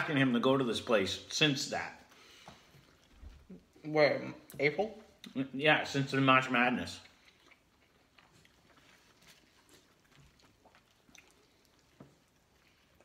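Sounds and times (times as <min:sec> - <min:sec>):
people chewing: 0:02.1 - 0:05.4, 0:06.8 - 0:13.0.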